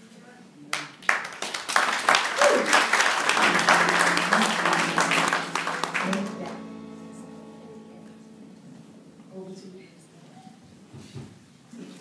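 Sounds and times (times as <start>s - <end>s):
congregation applauding: 0.7s - 8.2s
soft instrumental music: 3.3s - 11.0s.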